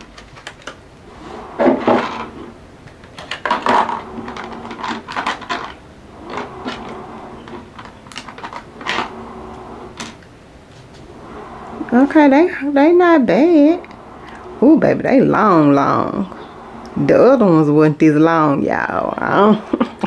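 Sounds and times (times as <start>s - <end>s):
plastic packaging crinkling: 2.8s - 9.1s.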